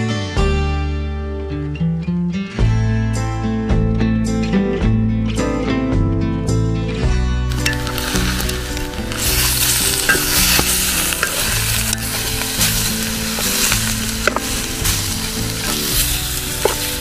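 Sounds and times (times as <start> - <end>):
food sizzling in a pan: 7.5 - 17.0.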